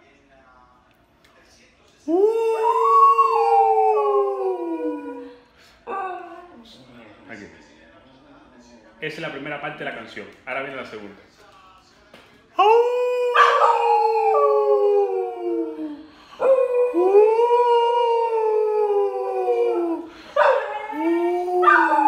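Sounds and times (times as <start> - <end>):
small dog howling: 2.1 - 6.4, 12.6 - 22.0.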